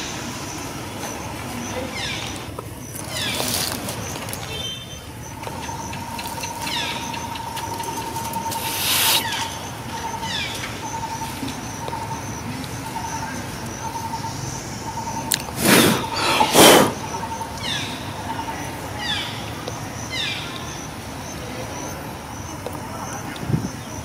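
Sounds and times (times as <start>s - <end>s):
steady pulsing bird note: 5.7s - 11.2s.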